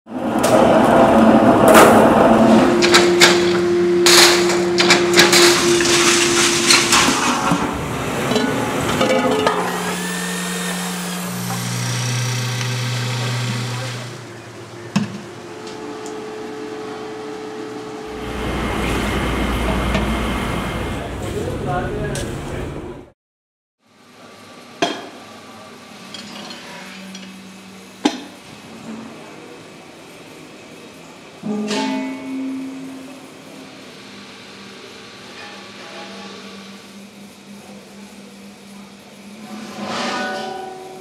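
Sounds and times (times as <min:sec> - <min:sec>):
machine hum: 0:00.1 - 0:23.1, 0:23.9 - 0:41.0
metal clattering and knocking: 0:08.3 - 0:09.6
drill motor running: 0:09.5 - 0:14.7.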